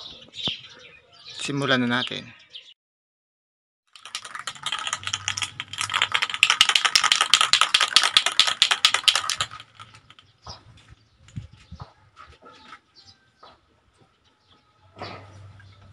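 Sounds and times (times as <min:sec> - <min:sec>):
spray can mixing ball rattling: 0:03.9 - 0:10.3.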